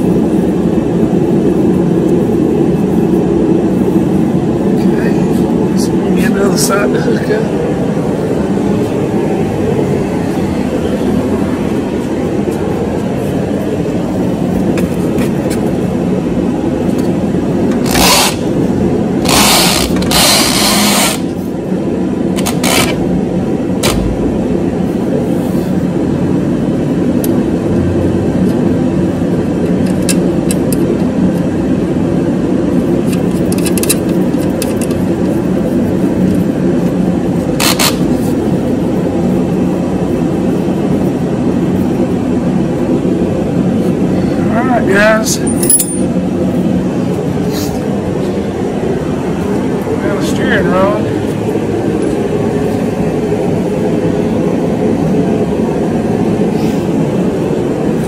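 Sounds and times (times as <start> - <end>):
mechanical whir: 16.9 - 21.4, 32.9 - 44.1
wrench clicking and scraping: 33.1 - 35.0, 37.6 - 38.1, 45.4 - 46.1.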